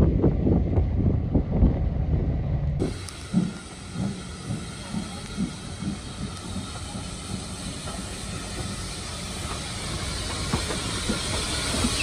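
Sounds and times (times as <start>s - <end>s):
steam hissing from locomotive: 2.8s - 12.0s.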